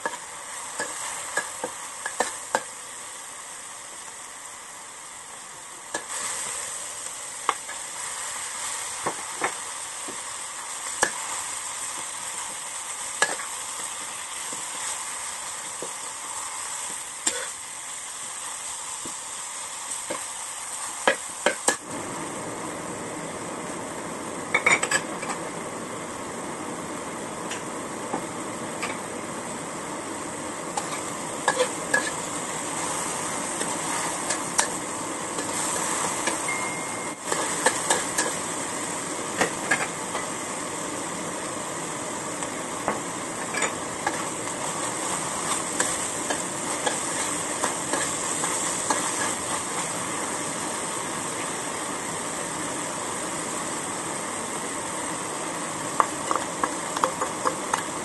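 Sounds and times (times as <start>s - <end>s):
meat sizzling in a wok: 0.0s - 58.0s
spatula scraping and knocking pan: 30.7s - 32.2s.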